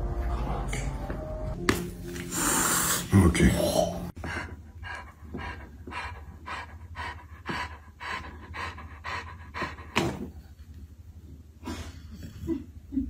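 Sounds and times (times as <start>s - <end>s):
dog panting: 4.2s - 10.6s.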